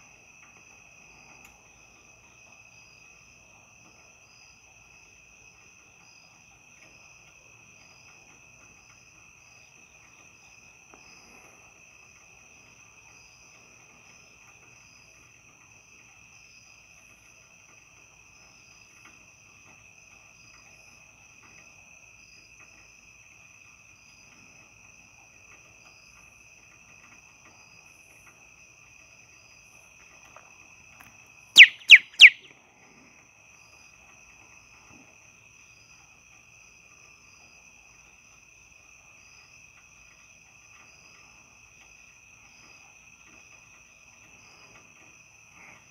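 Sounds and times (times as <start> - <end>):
crickets trilling: 21.8 - 32.5.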